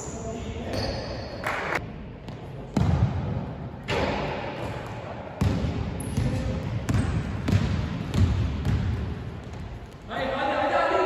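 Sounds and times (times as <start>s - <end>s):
basketball bouncing on wooden floor: 5.4s - 10.1s.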